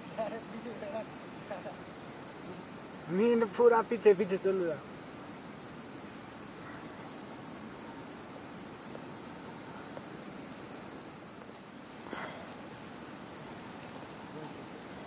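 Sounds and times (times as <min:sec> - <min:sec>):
chorus of insects droning: 0:00.0 - 0:15.0.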